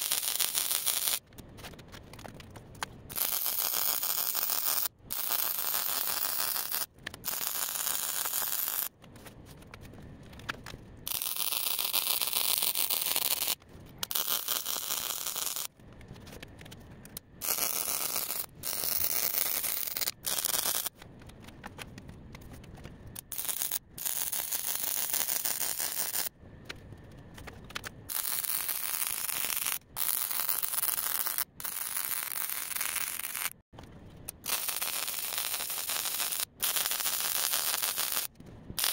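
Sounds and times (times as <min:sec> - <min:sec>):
electric arc welding crackling hiss: 0:00.0 - 0:01.2, 0:03.1 - 0:08.9, 0:11.1 - 0:15.7, 0:17.4 - 0:20.9, 0:23.2 - 0:26.3, 0:28.1 - 0:33.6, 0:34.3 - 0:38.9.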